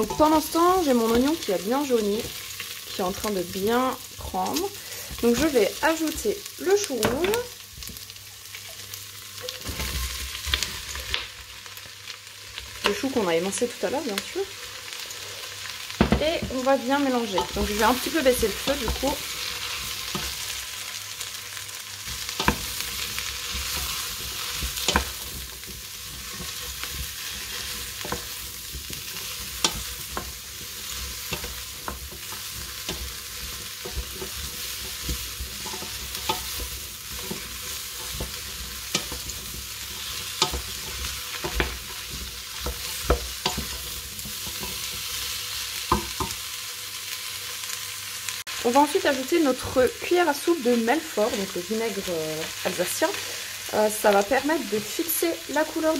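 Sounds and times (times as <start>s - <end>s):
vegetables sizzling in oil: 0.0s - 55.9s
wooden spoon scraping pot: 22.1s - 46.4s.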